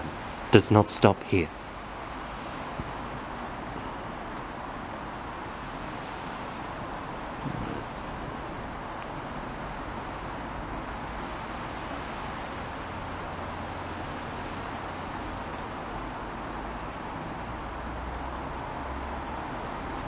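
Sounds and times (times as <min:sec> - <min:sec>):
even outdoor hiss: 0:00.0 - 0:20.0.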